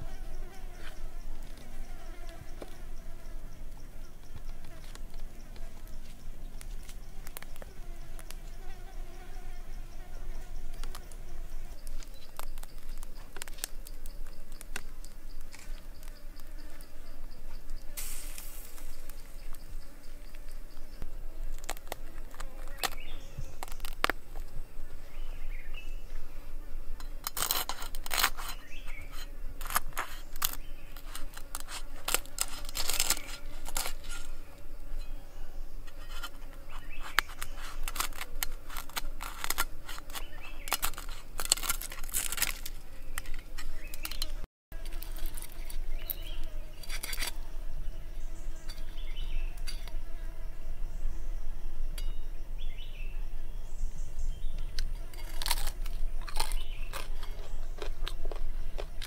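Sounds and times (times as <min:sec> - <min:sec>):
faint insect buzz: 0:00.0 - 0:59.0
cleaver cutting crackling skin: 0:27.2 - 0:34.3, 0:35.9 - 0:47.4, 0:54.8 - 0:59.0.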